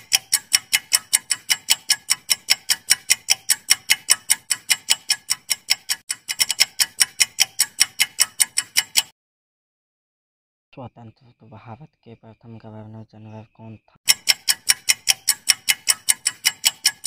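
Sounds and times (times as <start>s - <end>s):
clock ticking: 0.0s - 9.1s, 14.1s - 17.0s.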